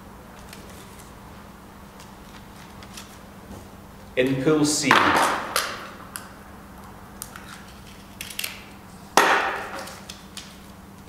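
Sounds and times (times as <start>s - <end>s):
plastic ball cracking open: 7.2s - 8.8s.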